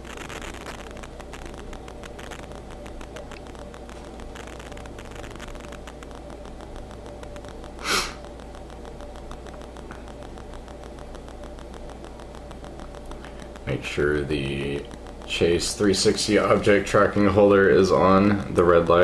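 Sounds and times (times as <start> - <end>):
steady low hum: 0.0 - 19.0
short hiss-like burst: 7.8 - 8.3.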